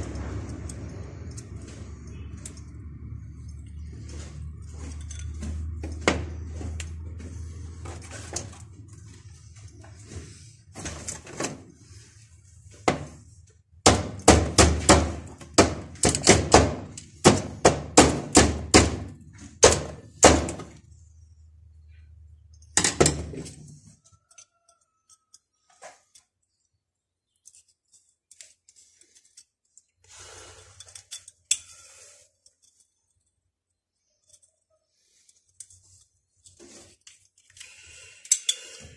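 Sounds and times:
pliers clicking and scraping on metal: 0.0 - 3.8, 22.4 - 26.6, 27.2 - 30.1, 30.7 - 33.4, 34.1 - 38.9.

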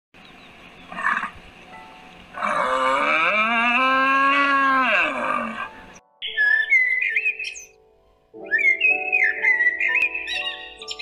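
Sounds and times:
cow mooing: 2.3 - 5.8.

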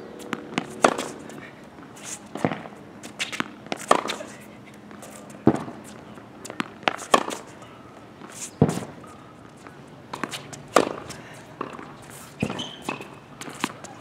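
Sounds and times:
tennis ball struck by racket: 0.3 - 1.2, 2.3 - 4.2, 6.5 - 7.5, 8.2 - 9.0, 10.1 - 13.9.

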